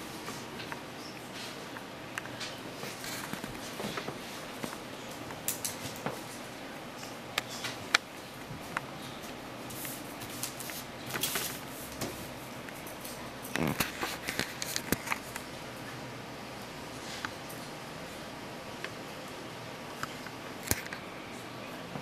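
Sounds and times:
paper rustling: 9.7 - 12.4.

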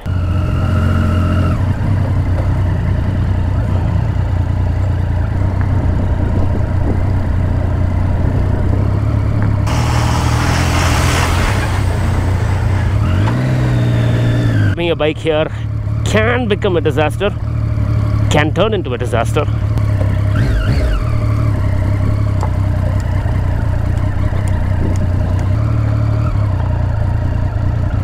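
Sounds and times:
motorcycle engine at low revs: 0.0 - 28.0
hissing noise: 9.7 - 13.4.

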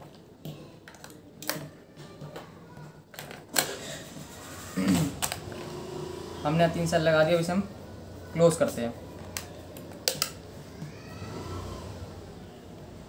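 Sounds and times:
batteries clicking into plastic toy: 9.3 - 10.4.

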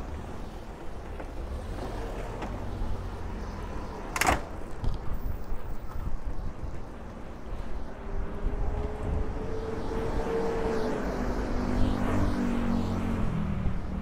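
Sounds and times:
low traffic rumble: 0.0 - 14.0.

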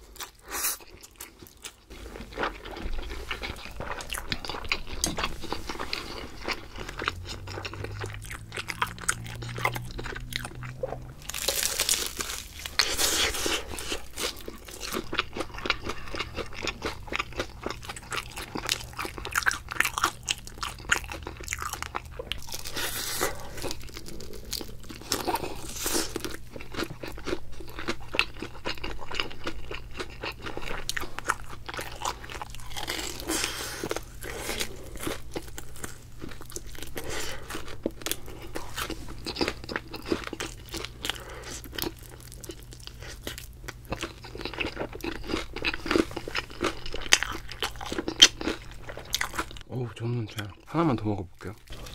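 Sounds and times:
crunching and chewing fried chicken: 0.0 - 51.9.

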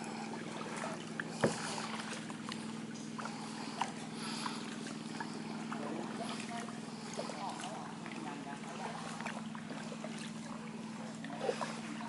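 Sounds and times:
boat engine humming: 0.0 - 12.0.

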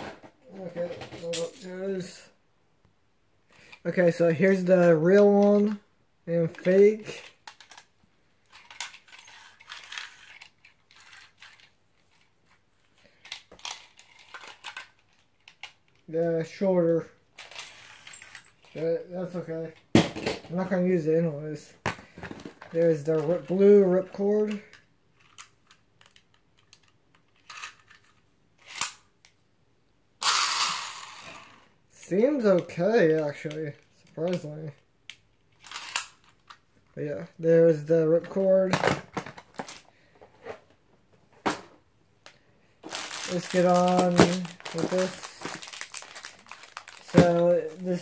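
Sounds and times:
plastic parts clicking and rustling: 0.0 - 1.8, 3.5 - 16.1, 17.3 - 20.7, 21.8 - 29.4, 32.4 - 36.9, 38.0 - 40.8, 41.4 - 48.0
packaging rustling: 38.6 - 40.7, 42.8 - 48.0.

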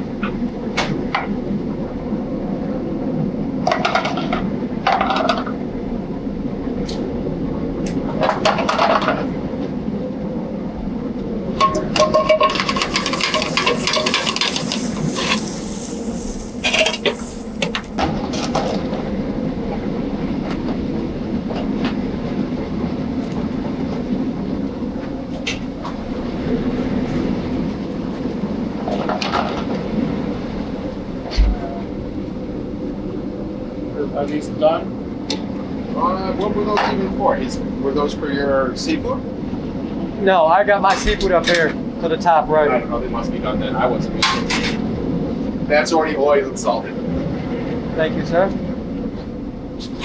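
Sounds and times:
gas range and exhaust hood: 0.0 - 46.9
utensils clinking: 12.1 - 15.6.

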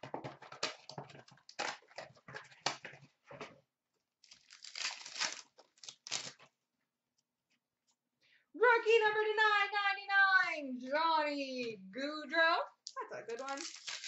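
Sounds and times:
card pack wrapper crinkling and tearing: 4.2 - 6.4, 13.3 - 14.0.

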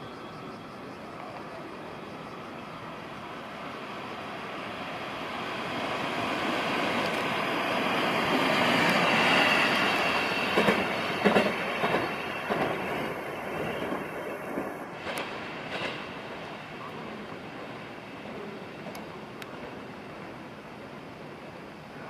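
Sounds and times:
train rolling past: 0.0 - 22.0
wheel clacks over track: 10.5 - 12.8.

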